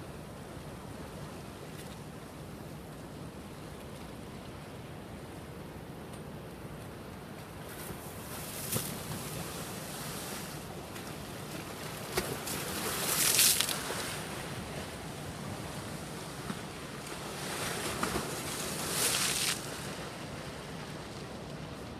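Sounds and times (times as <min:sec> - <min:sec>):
waves washing against seawall: 0:07.4 - 0:21.9.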